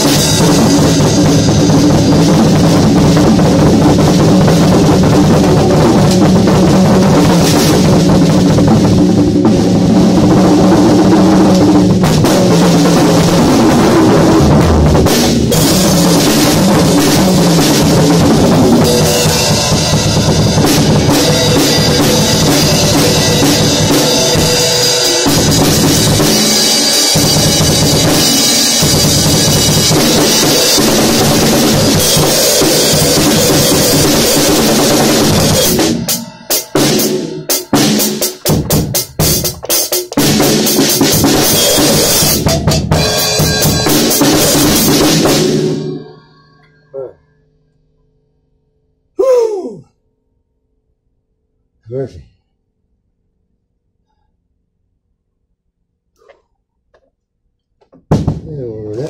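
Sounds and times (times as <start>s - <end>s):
drum kit playing: 0.0s - 46.2s, 57.9s - 59.0s.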